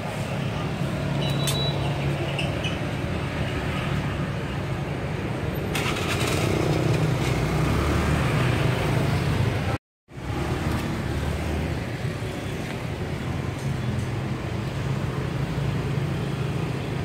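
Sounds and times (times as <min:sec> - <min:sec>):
motorbike engines running: 0:05.7 - 0:11.8.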